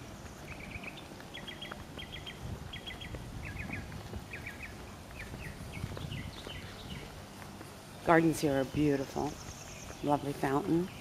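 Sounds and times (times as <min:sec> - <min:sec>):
songbird chirping: 0:00.0 - 0:11.0.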